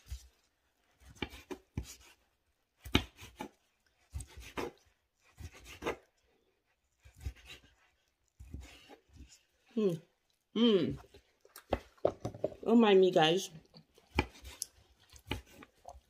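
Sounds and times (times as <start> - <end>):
knife slicing sausage: 0.0 - 9.8, 13.7 - 16.0.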